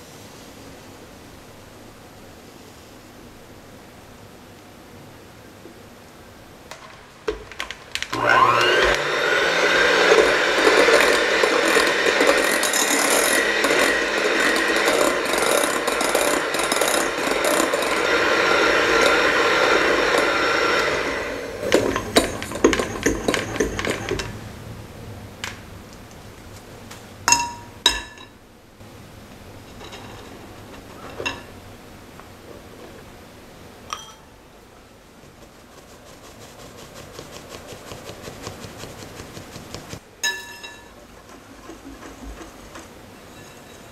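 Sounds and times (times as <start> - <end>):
electric hand mixer whirring: 8.0 - 24.4.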